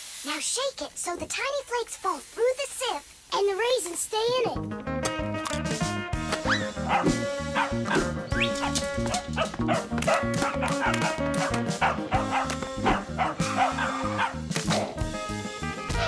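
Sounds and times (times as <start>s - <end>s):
lively music with bass beat: 4.6s - 16.0s.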